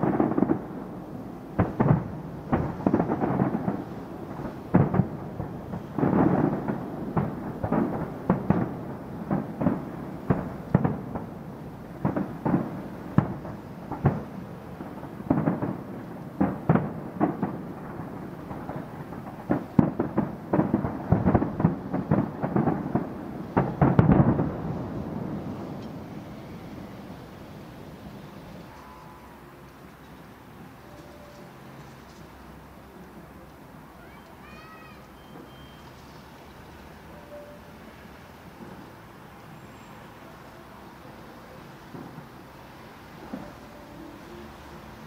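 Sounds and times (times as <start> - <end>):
fireworks booming and cracking: 0.0 - 29.2, 41.0 - 45.0.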